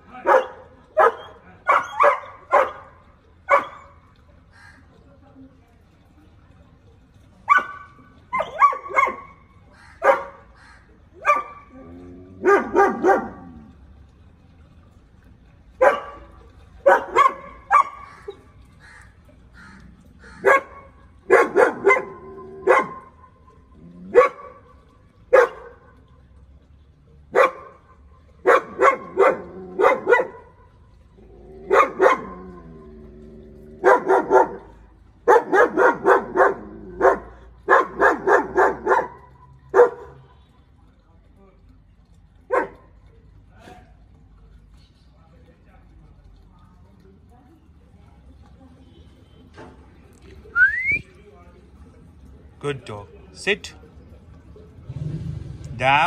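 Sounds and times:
dog barking loudly: 0:00.2 - 0:02.9, 0:03.5 - 0:03.9, 0:07.5 - 0:10.5, 0:11.2 - 0:11.7, 0:12.4 - 0:13.4, 0:16.8 - 0:18.1, 0:20.3 - 0:23.2, 0:24.1 - 0:24.6, 0:25.3 - 0:25.8, 0:27.3 - 0:27.8, 0:28.4 - 0:30.5, 0:31.7 - 0:32.4, 0:33.8 - 0:40.2, 0:42.5 - 0:42.8.

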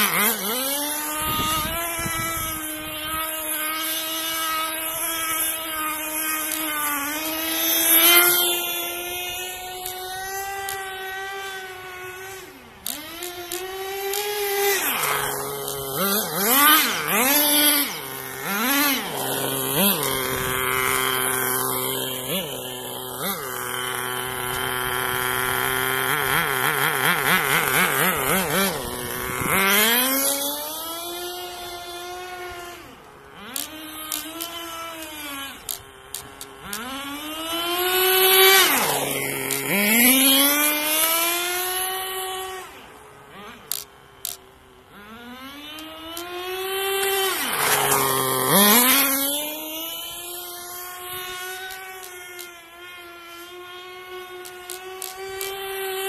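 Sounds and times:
rc car nitro engine revving: 0:00.0 - 0:56.0.

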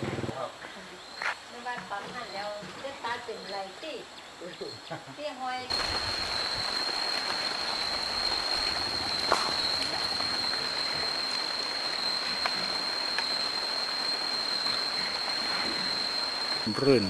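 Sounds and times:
even hiss: 0:00.0 - 0:17.0
high-pitched insect drone: 0:05.7 - 0:17.0.

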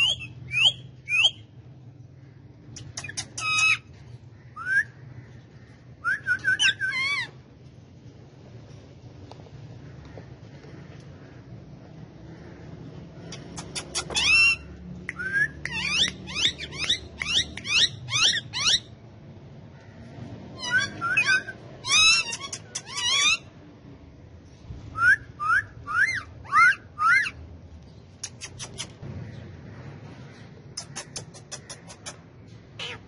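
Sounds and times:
parakeets calling shrilly: 0:00.0 - 0:01.5, 0:02.8 - 0:05.0, 0:05.6 - 0:07.4, 0:13.3 - 0:19.0, 0:20.6 - 0:23.5, 0:25.0 - 0:27.4, 0:32.8 - 0:33.0.

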